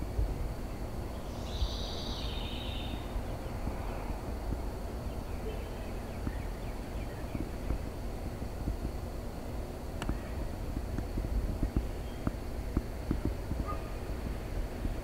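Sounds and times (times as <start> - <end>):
steady low rumble: 0.0 - 15.0
bird calling: 1.2 - 3.4.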